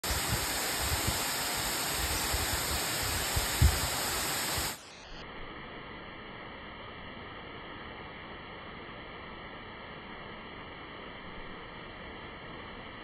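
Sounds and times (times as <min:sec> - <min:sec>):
waterfall rushing over rock: 0:00.0 - 0:05.2.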